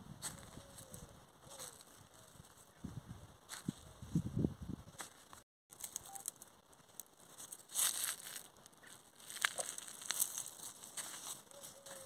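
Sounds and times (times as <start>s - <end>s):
dry vines and leaves rustling: 0.2s - 12.0s.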